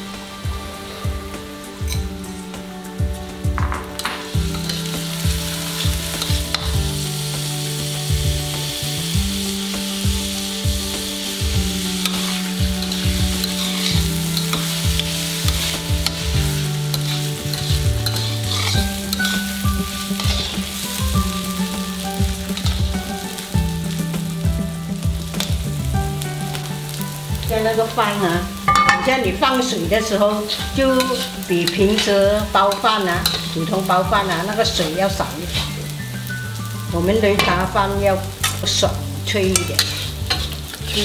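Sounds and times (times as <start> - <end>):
rice sizzling in oil: 0.0 - 41.0
soft background music: 0.0 - 41.0
metal ladle scraping wok: 3.8 - 8.0, 10.5 - 23.4, 28.6 - 41.0.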